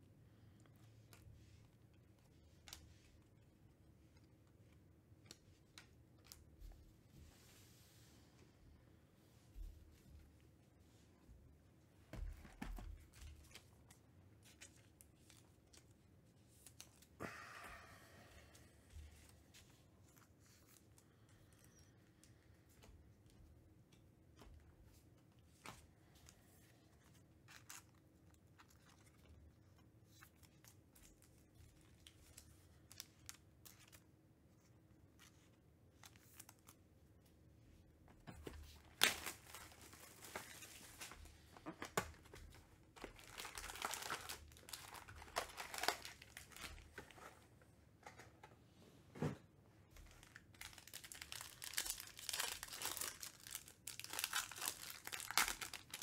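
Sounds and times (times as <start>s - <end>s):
foil packs crinkling and ripping: 38.8s - 42.4s, 43.0s - 47.1s, 50.0s - 56.0s.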